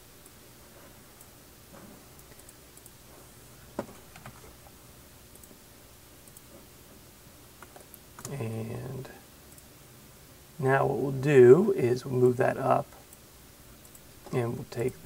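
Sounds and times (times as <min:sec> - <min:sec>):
computer mouse clicks: 0:02.2 - 0:03.0, 0:05.3 - 0:05.6, 0:06.2 - 0:06.6, 0:07.6 - 0:08.4, 0:13.8 - 0:14.4.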